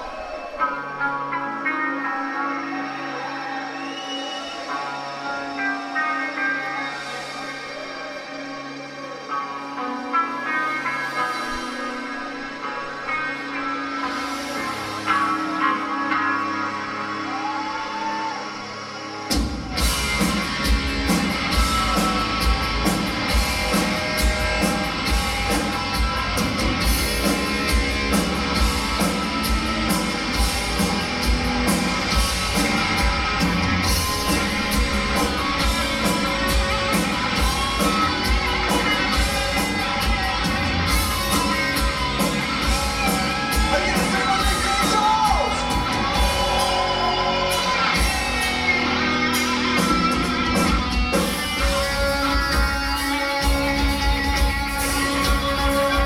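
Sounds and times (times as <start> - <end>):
electric guitars: 0.0 - 56.0
bass guitar: 19.1 - 56.0
drum kit steady beat: 19.3 - 56.0.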